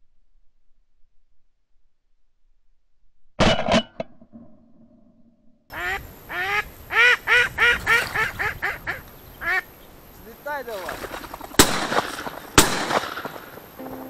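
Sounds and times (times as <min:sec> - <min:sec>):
ducks quacking: 0:05.7 - 0:14.0
loud sharp bangs: 0:11.6 - 0:13.7.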